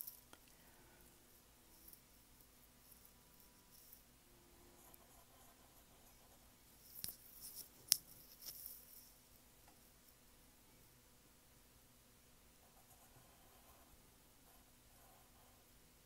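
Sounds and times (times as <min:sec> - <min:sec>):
pencil scratching on paper: 0:01.3 - 0:09.2, 0:12.6 - 0:15.8.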